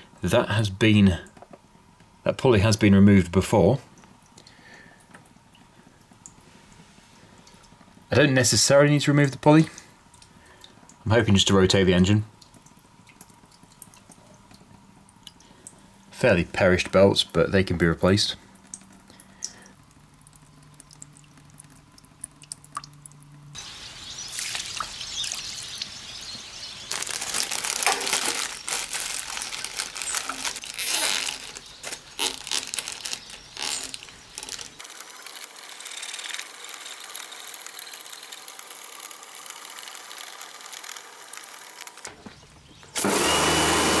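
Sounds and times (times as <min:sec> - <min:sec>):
steady hiss: 0:23.6 - 0:36.6
rustling scraping and clicking: 0:26.9 - 0:36.5.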